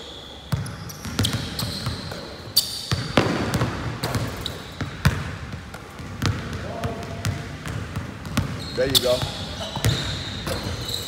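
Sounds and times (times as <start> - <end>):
basketball bouncing on wooden floor: 0.5 - 2.3, 2.9 - 11.0
high squeaks: 8.6 - 11.0.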